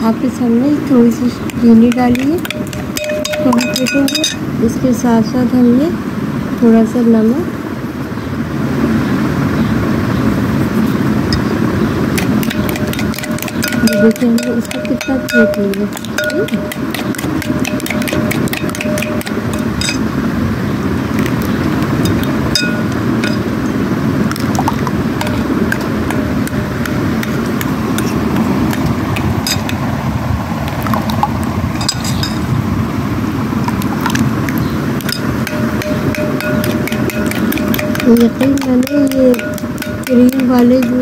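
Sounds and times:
spoon clinking against glass: 1.4s - 4.4s, 12.2s - 20.1s, 21.2s - 23.5s, 24.3s - 29.9s, 31.2s - 32.5s, 34.0s - 41.0s
wet churning of yogurt: 12.1s - 20.0s, 21.1s - 22.6s, 33.6s - 41.0s.

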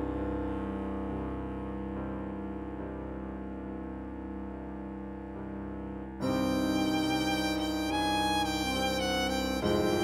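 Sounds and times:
background music of long held notes: 0.0s - 10.0s.

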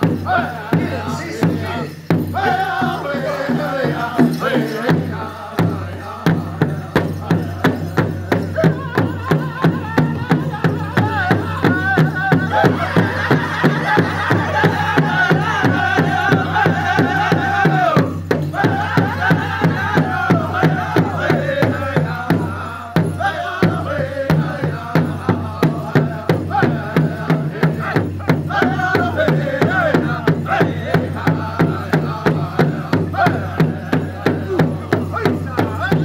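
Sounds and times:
large drum beating: 0.0s - 36.0s
men singing together: 0.0s - 36.0s.

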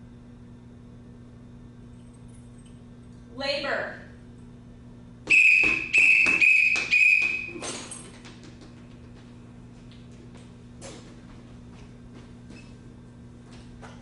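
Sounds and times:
shrill whistle blasts: 5.3s - 7.6s.

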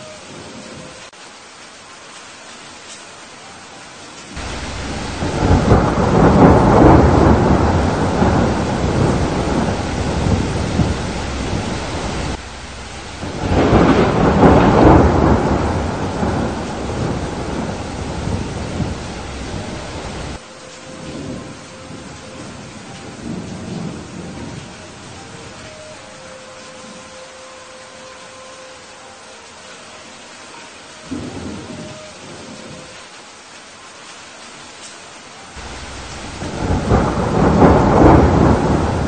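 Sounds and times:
steady rain: 0.0s - 39.0s
rolling thunder: 4.4s - 20.4s, 35.6s - 39.0s.

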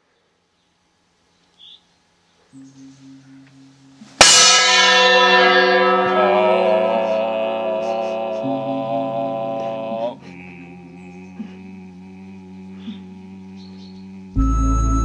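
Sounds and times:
low steady drone: 2.6s - 15.0s
bell ringing with overtones: 2.7s - 7.3s.

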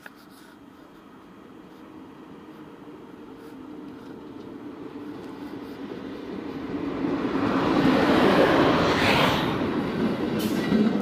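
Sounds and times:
electric locomotive passing: 0.6s - 11.0s.

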